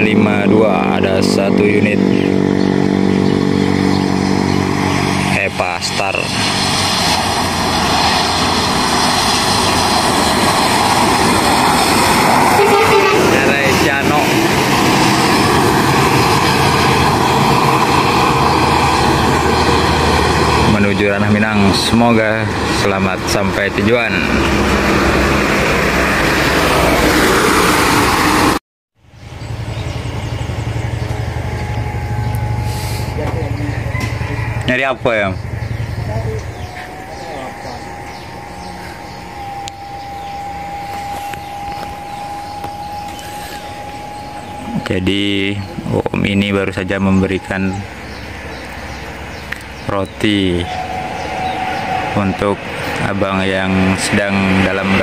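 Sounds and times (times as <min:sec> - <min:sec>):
bus engine running: 0:00.0 - 0:55.0
tyres hissing on wet road: 0:06.2 - 0:20.9, 0:32.6 - 0:34.6, 0:43.1 - 0:44.5
low pulsing hum: 0:29.0 - 0:53.1.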